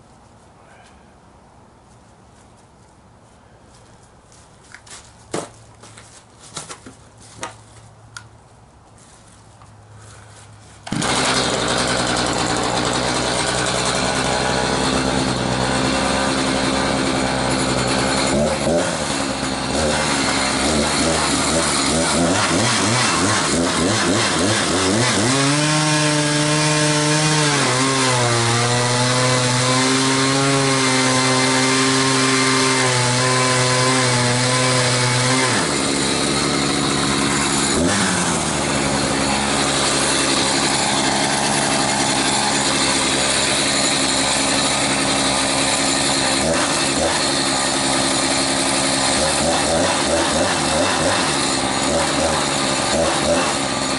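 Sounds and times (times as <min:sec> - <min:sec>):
chainsaw cutting log: 0:10.8 - 0:53.9.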